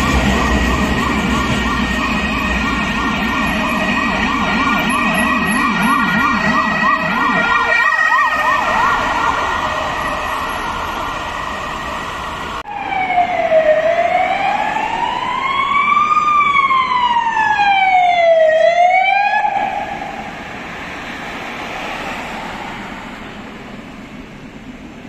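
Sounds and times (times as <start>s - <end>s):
siren yelping fast: 0.0s - 20.3s
siren wailing: 0.0s - 23.9s
low warbling siren: 0.0s - 24.2s.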